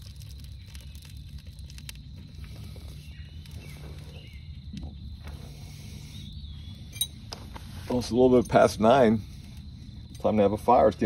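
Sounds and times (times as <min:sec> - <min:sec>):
faint bird chirps: 0:02.2 - 0:07.7.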